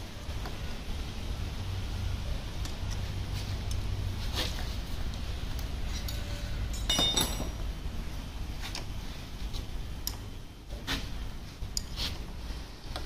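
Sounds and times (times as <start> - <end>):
metal tool clinking on metal: 6.0 - 7.6.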